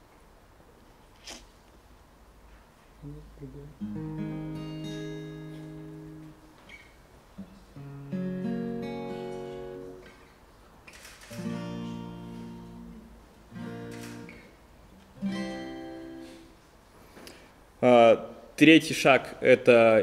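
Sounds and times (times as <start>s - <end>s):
acoustic guitar playing slow chords: 3.0s - 10.3s, 11.3s - 16.6s.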